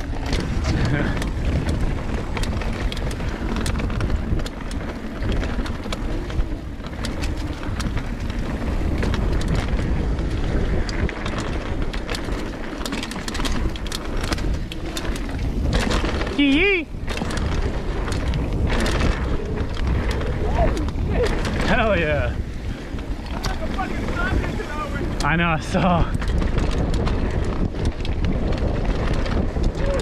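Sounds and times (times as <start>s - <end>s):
bike clicks and rattles: 0.0s - 30.0s
tyre noise on dirt: 0.0s - 30.0s
wind rumble on microphone: 0.0s - 30.0s.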